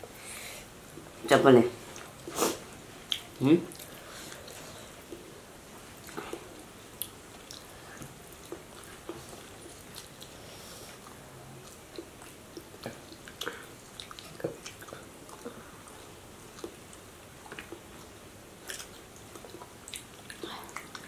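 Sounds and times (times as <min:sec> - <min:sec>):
chewing and mouth smacks: 0:03.1 - 0:05.3, 0:06.0 - 0:10.4, 0:11.0 - 0:21.0.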